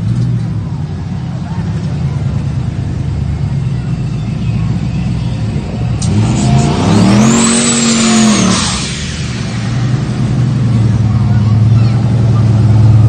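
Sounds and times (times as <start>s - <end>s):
vehicle engines idling: 0.0s - 13.0s
high whine: 2.9s - 13.0s
engine revving hard: 5.5s - 13.0s.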